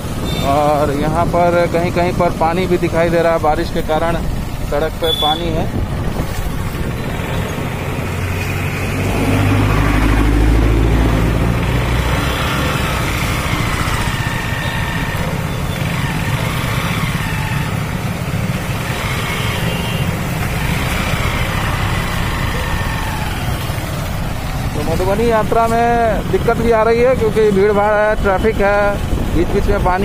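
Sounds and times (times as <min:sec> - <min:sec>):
road noise: 0:00.0 - 0:30.0
motorcycle engine running: 0:03.9 - 0:26.8.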